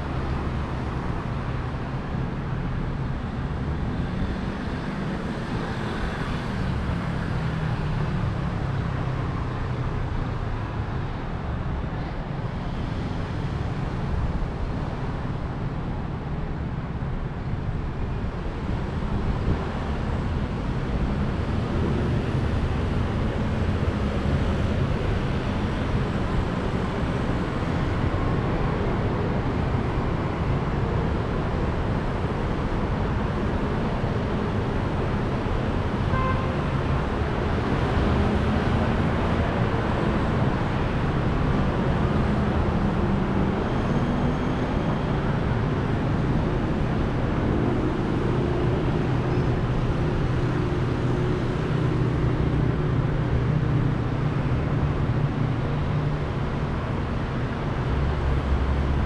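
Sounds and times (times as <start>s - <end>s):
street traffic rumble: 0.0s - 59.0s.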